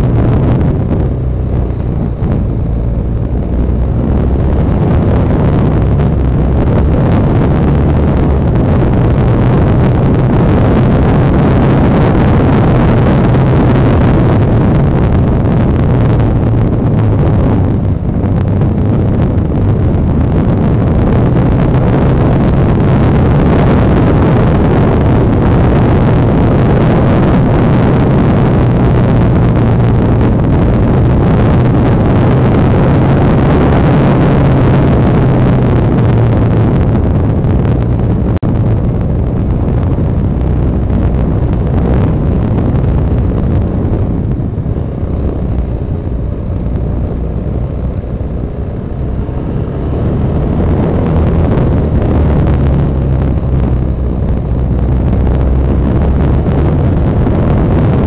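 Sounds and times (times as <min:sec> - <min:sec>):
motorcycle engine running: 0:00.0 - 0:58.0
wind noise on microphone: 0:00.0 - 0:58.0.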